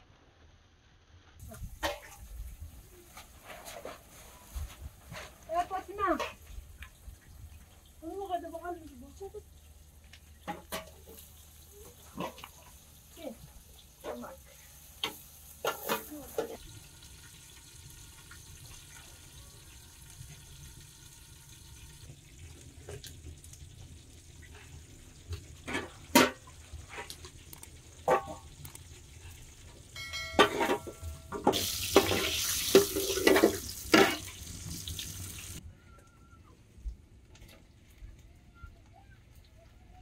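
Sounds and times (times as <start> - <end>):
glass pounding on metal plate: 30.0 - 31.6
metal dishware clinking: 30.0 - 34.3.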